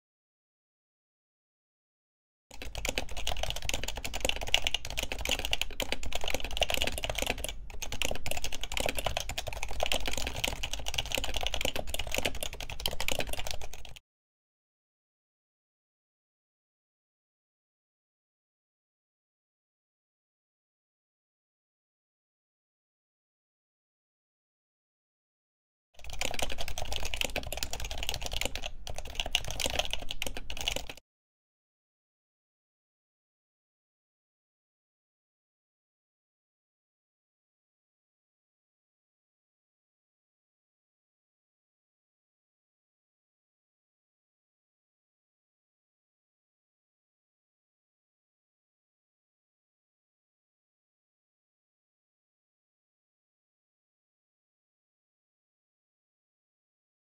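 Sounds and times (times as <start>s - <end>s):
keyboard typing clicks: 2.6s - 14.0s, 26.0s - 31.0s.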